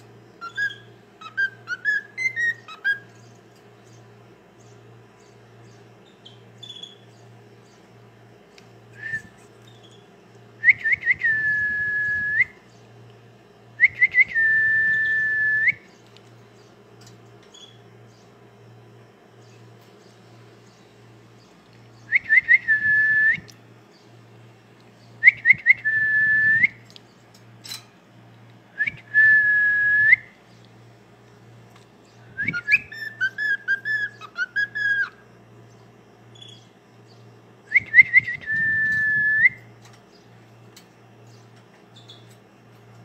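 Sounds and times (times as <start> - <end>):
cockatiel whistling a tune: 0.4 - 3.0, 13.8 - 15.8, 32.4 - 35.2.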